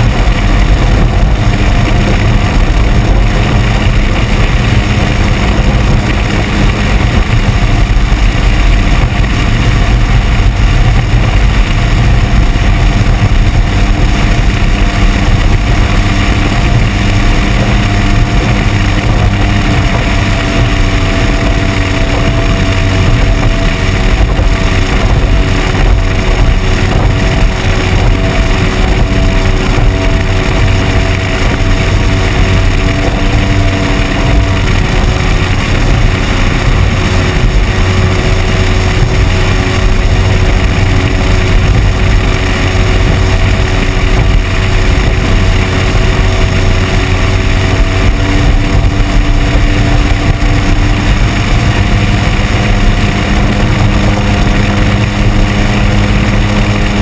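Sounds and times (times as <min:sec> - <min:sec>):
outboard motor running: 0:00.0 - 0:57.0
rushing water: 0:00.0 - 0:57.0
wind noise: 0:00.0 - 0:57.0.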